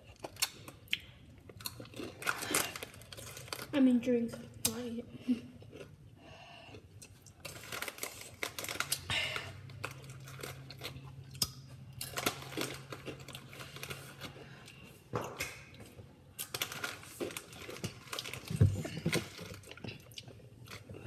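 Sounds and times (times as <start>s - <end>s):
packaging crinkling and rustling: 7.4s - 11.0s, 12.0s - 14.4s, 16.4s - 20.0s.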